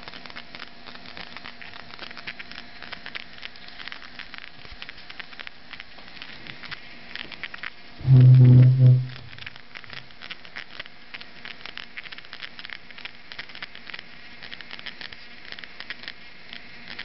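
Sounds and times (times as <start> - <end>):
low steady hiss: 0.0 - 17.0
pump crackling and ticking: 0.0 - 17.0
brief loud low hum: 8.0 - 9.4.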